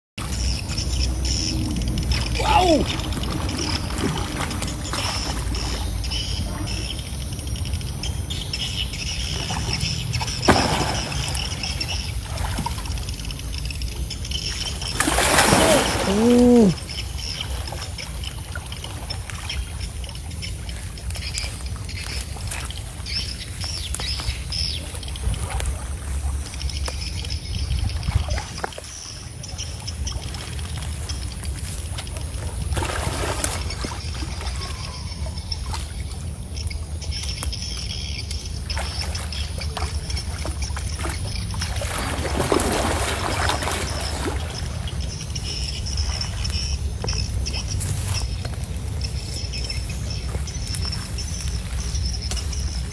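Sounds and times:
steady low rumble: 0.2 - 10.5
water sloshing and splashing: 0.2 - 52.9.

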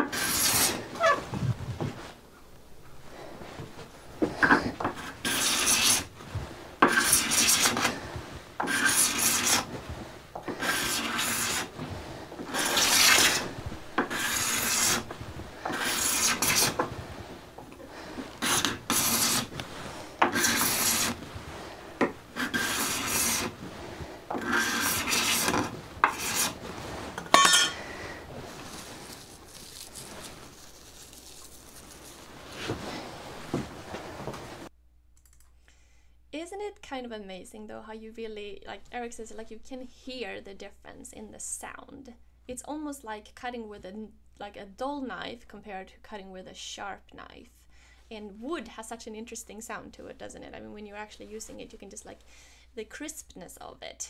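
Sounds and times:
card scraper cutting wood: 0.0 - 1.2, 4.9 - 6.1, 6.8 - 8.0, 8.6 - 9.7, 10.5 - 11.7, 12.5 - 16.9, 18.4 - 19.6, 20.2 - 21.2, 22.0 - 23.6, 24.3 - 26.6.

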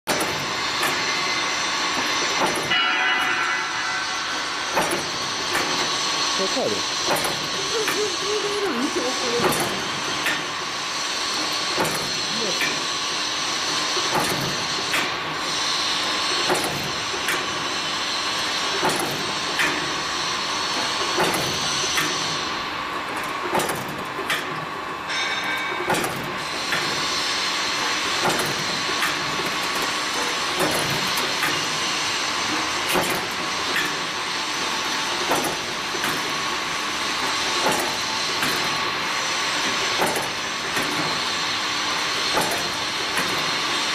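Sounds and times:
machine motor hum and hiss: 0.1 - 43.9
regular mechanical knock: 23.2 - 26.9.

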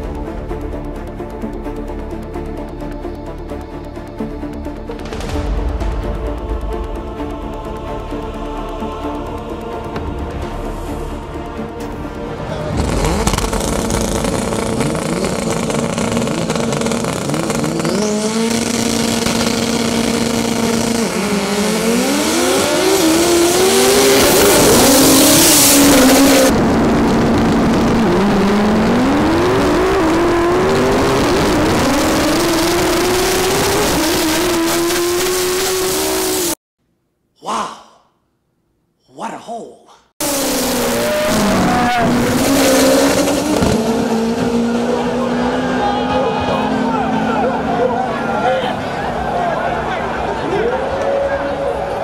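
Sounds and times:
drag cars accelerating hard: 12.2 - 36.6, 40.2 - 52.0.

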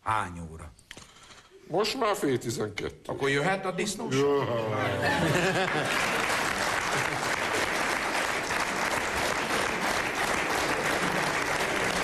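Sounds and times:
audience applauding: 5.1 - 12.0.

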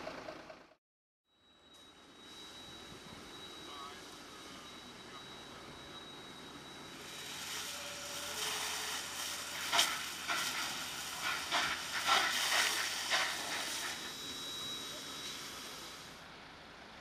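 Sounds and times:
water jets hissing: 7.0 - 16.2.

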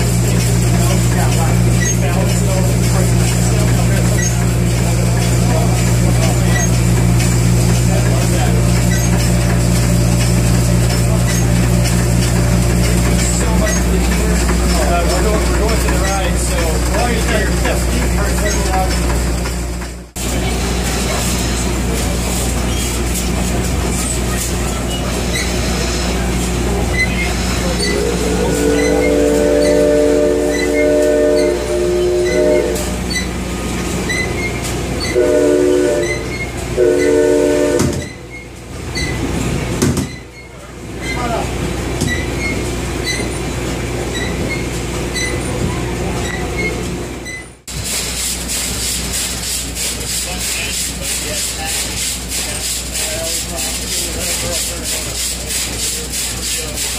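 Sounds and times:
low mechanical rumble: 0.0 - 51.7
steam engine running: 0.0 - 56.9
steam whistle blowing: 27.7 - 33.3, 35.0 - 38.2.

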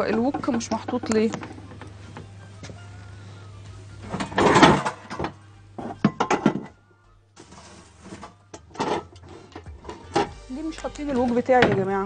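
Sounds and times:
kitchenware knocks and clatters: 0.0 - 1.6, 4.1 - 6.8, 8.1 - 10.4, 11.1 - 12.0
kitchenware scraping: 0.0 - 2.7, 4.0 - 6.8, 7.4 - 12.0.

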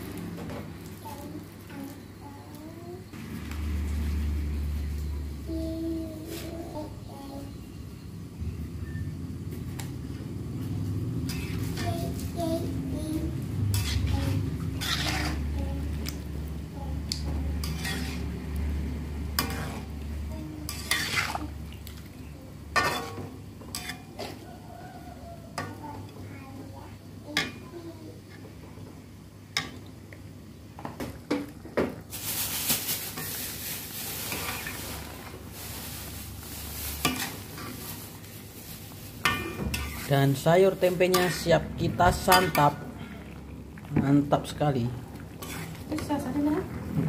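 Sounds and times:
stew simmering: 9.5 - 47.0
metal spatula scraping wok: 11.2 - 15.6, 17.5 - 18.4, 19.3 - 19.9, 20.6 - 21.5, 22.7 - 24.4, 33.0 - 43.0, 45.4 - 46.4.

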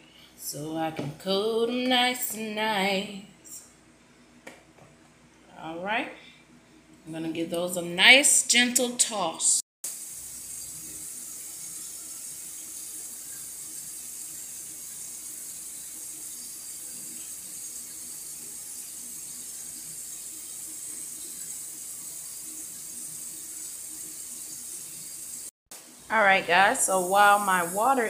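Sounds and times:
faucet running water: 9.8 - 28.0.

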